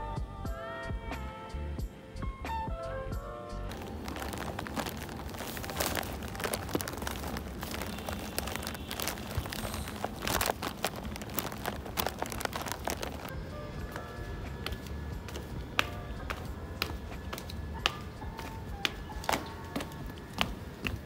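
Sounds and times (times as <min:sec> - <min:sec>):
plastic bag crinkling: 0:03.7 - 0:13.3
footsteps on pavement: 0:03.7 - 0:21.0.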